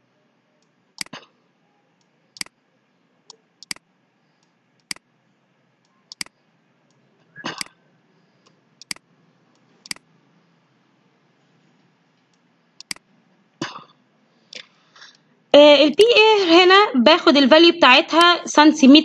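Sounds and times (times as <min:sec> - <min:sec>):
computer mouse clicking: 0:00.6 - 0:01.2, 0:02.0 - 0:02.6, 0:03.6 - 0:05.0, 0:05.8 - 0:07.8, 0:08.4 - 0:10.1, 0:12.2 - 0:13.1.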